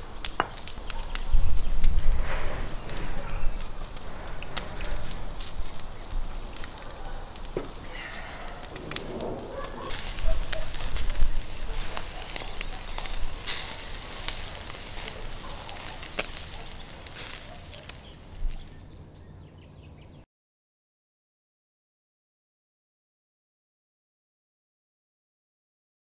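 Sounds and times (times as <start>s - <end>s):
steady hiss: 0.0s - 18.6s
charcoal embers crackling: 0.0s - 19.4s
sharp pops: 0.2s - 18.0s.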